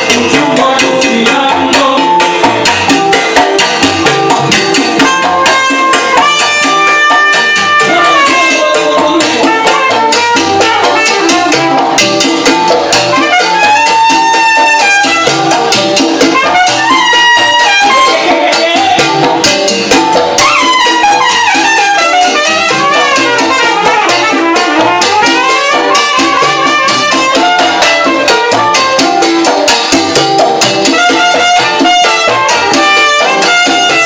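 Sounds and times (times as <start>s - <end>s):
percussion: 0.0s - 34.0s
piano: 0.0s - 34.0s
trumpet section: 3.6s - 34.0s.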